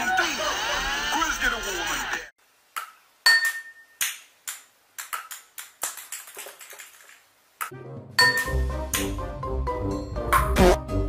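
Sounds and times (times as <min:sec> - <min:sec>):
wine glass ringing: 0:03.3 - 0:04.0, 0:08.2 - 0:08.6.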